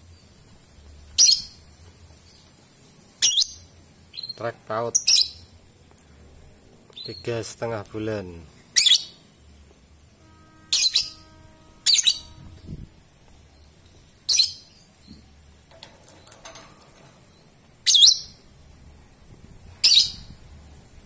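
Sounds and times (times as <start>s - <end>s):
bird shrill calls: 8.8s - 9.2s, 10.6s - 12.6s, 14.3s - 14.9s, 17.8s - 18.4s, 19.8s - 20.3s.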